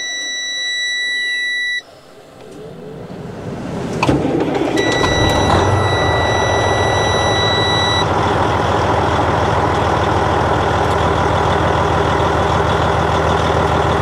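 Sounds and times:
warning buzzer beep: 0.0s - 1.9s, 4.8s - 8.1s
diesel engine idling: 1.7s - 14.0s.

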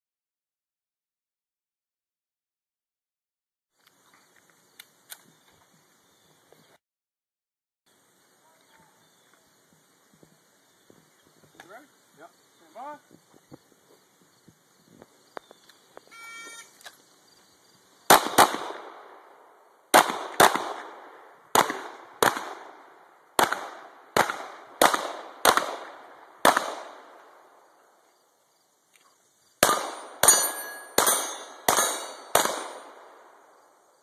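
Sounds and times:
short electronic tone: 16.1s - 16.8s
pistol shots: 18.1s - 19.2s, 19.9s - 22.8s, 23.4s - 27.2s, 29.6s - 33.4s
steel targets ringing: 30.0s - 32.4s.

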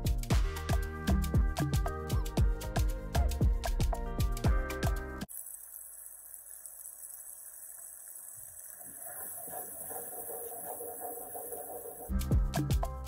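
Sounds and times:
music: 0.0s - 5.3s, 12.1s - 13.0s
caramel hissing and bubbling: 5.2s - 12.1s.

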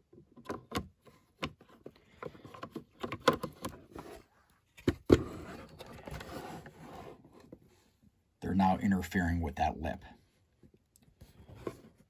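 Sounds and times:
plastic clicks and knocks: 0.1s - 3.8s.

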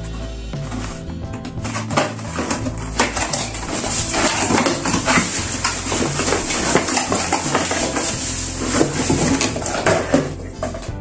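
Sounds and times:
upbeat background music: 0.0s - 11.0s
cardboard packaging clattering: 0.6s - 11.0s
plastic bag rustling: 0.6s - 11.0s.

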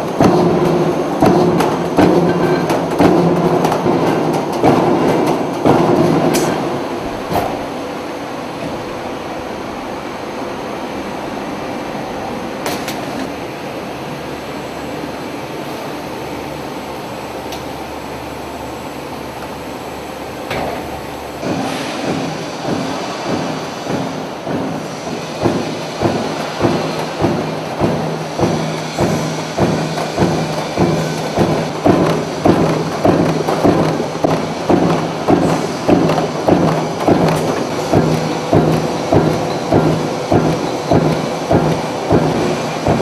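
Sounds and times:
press stamping: 0.0s - 7.7s, 20.5s - 43.0s
machinery running noise: 0.0s - 43.0s.

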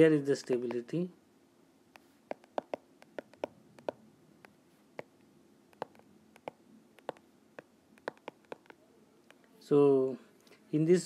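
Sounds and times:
stylus tapping on tablet screen: 2.0s - 5.1s, 5.7s - 9.4s.

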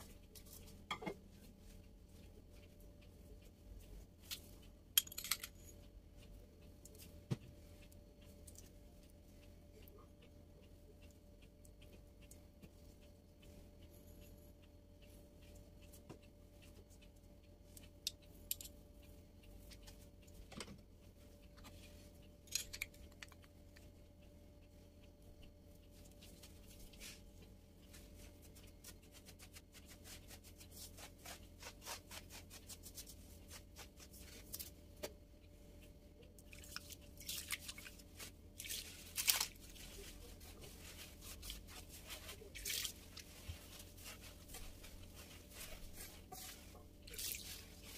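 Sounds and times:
faint low hum: 0.0s - 47.9s
utensils clicking and tapping: 2.2s - 10.1s, 11.0s - 24.3s, 36.2s - 47.9s
rustling and scraping: 37.5s - 47.9s.

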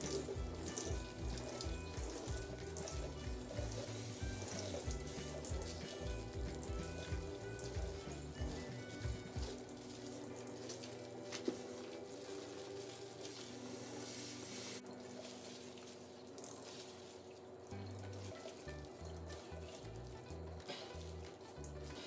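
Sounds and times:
background music with bass line: 0.0s - 9.6s
liquid trickling into a pot: 0.0s - 22.0s.

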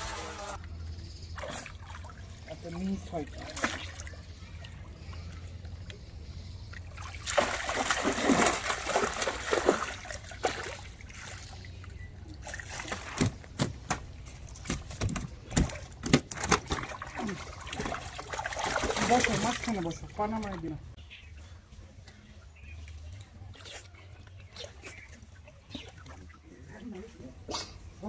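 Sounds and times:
water splashing and pouring off net: 6.9s - 11.5s, 16.6s - 19.8s.

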